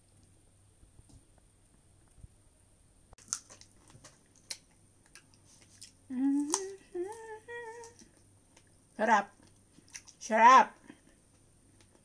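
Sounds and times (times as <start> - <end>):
strawberry being chewed: 3.2 - 8.8, 9.4 - 10.2
woman humming mmm: 6.1 - 8.0.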